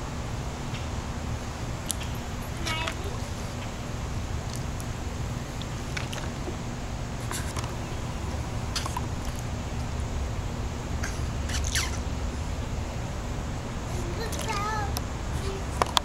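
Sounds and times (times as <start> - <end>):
faint steady hum: 0.0 - 16.0
low outdoor rumble: 0.0 - 16.0
water splashing in wading pool: 4.4 - 10.4.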